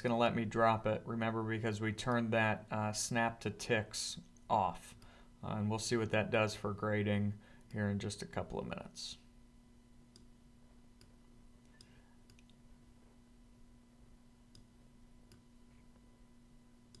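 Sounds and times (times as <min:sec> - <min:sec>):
faint steady hum: 0:00.0 - 0:17.0
computer mouse clicks: 0:11.0 - 0:12.6.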